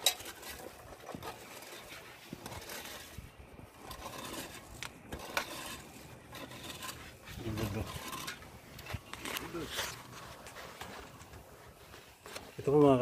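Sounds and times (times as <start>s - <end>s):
hands scraping plastic pipes: 0.0s - 13.0s.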